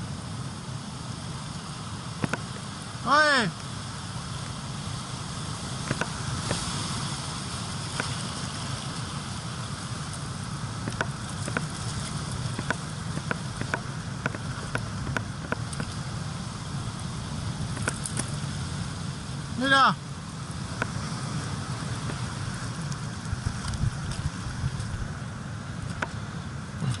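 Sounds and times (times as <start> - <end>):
surf washing over rocks: 0.0 - 27.0
wind on microphone: 4.1 - 19.6, 20.2 - 27.0.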